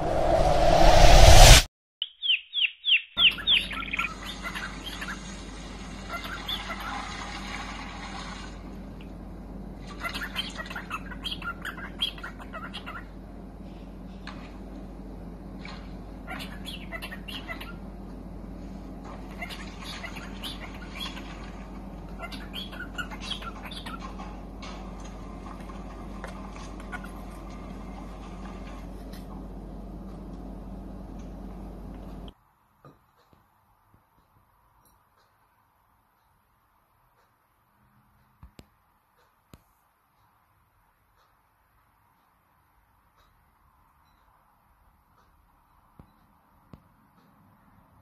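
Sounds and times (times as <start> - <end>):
cockatiel chirping: 2.0 - 5.2, 16.3 - 17.8, 19.4 - 21.3, 22.2 - 24.0
rapid bird trill: 2.0 - 5.3, 6.0 - 7.0, 16.2 - 17.8, 19.4 - 21.5, 22.1 - 24.2
faint room hum: 3.2 - 48.0.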